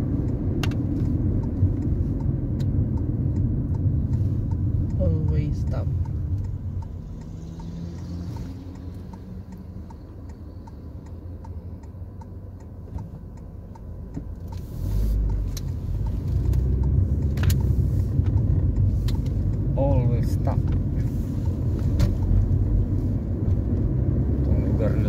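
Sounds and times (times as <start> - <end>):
car engine idling: 0.0 - 25.0
road noise: 0.0 - 25.0
turn signal ticking: 0.0 - 25.0.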